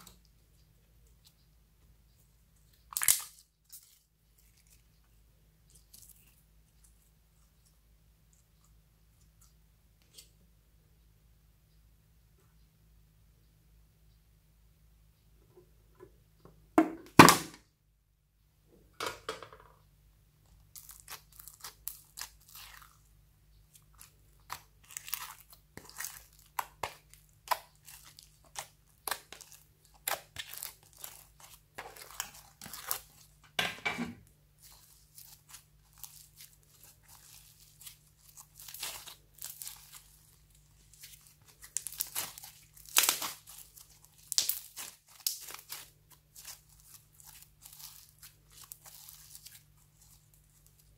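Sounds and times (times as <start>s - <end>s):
slime crackling and crunching: 2.9s - 5.0s, 20.6s - 23.1s, 23.7s - 33.5s, 34.6s - 50.9s.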